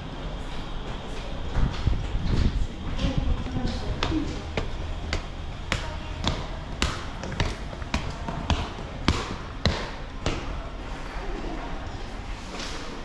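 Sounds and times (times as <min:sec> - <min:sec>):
footsteps climbing stairs: 0:00.8 - 0:10.7.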